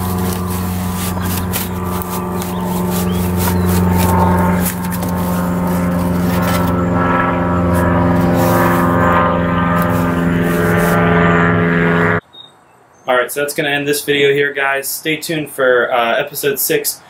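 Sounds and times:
motor humming: 0:00.0 - 0:12.2.

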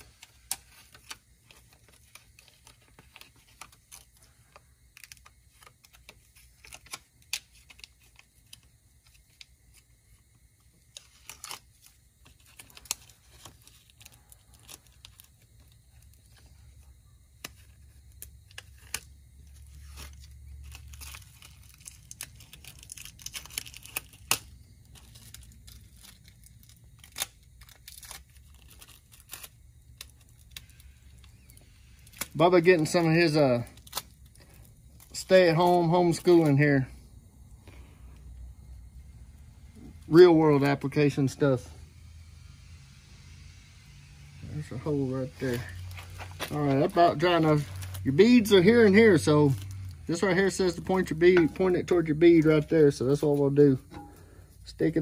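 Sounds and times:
plastic crinkling and clicks: 0:17.4 - 0:33.0.

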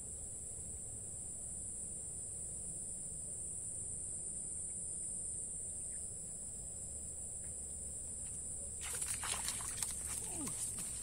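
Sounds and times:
fish splashing at the surface: 0:08.8 - 0:11.0.

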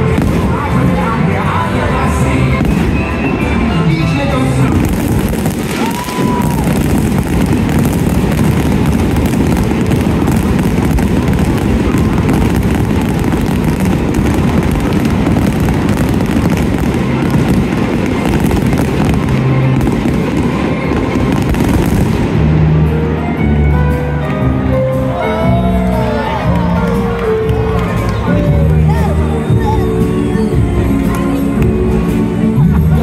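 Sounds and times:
fireworks bangs and crackles: 0:00.0 - 0:24.6
heavy low rumble: 0:00.0 - 0:25.0.

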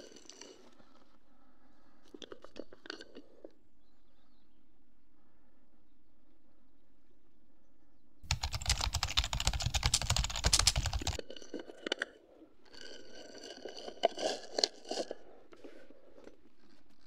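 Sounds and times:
rapid mechanical clicking: 0:08.3 - 0:11.2.

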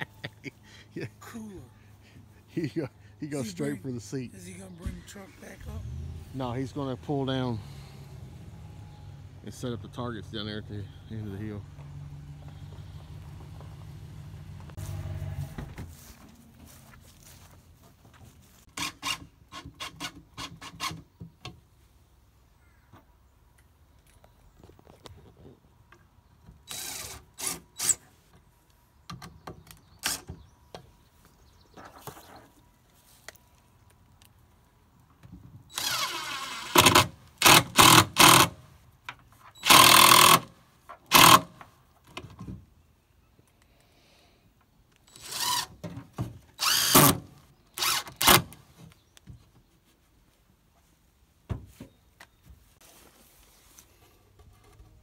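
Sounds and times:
drill driving screws into wood: 0:18.7 - 0:21.0, 0:26.6 - 0:28.0, 0:30.0 - 0:30.4, 0:35.7 - 0:38.6, 0:39.6 - 0:41.6, 0:45.0 - 0:45.8, 0:46.5 - 0:48.6.

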